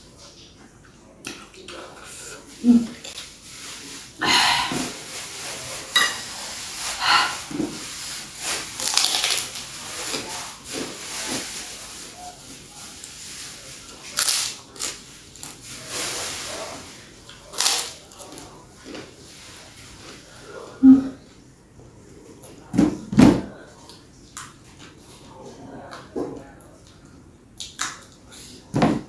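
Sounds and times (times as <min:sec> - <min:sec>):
person chewing: 0:08.8 - 0:10.2, 0:14.2 - 0:15.6.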